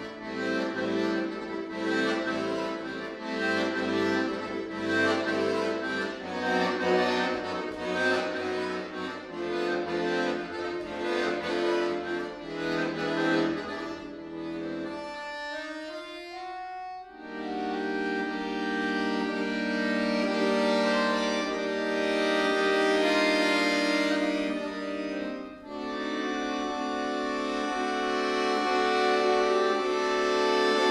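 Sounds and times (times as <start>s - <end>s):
accordion playing: 0.0s - 30.9s.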